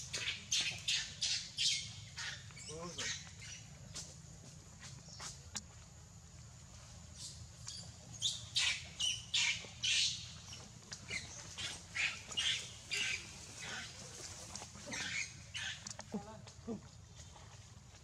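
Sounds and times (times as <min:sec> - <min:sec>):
monkey squawking: 0:11.1 - 0:14.0, 0:14.9 - 0:16.1.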